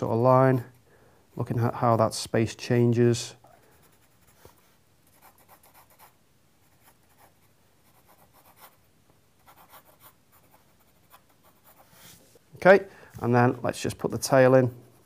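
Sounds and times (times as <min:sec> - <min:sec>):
pencil scratching on paper: 0:03.7 - 0:08.8, 0:09.4 - 0:12.3, 0:14.7 - 0:15.0.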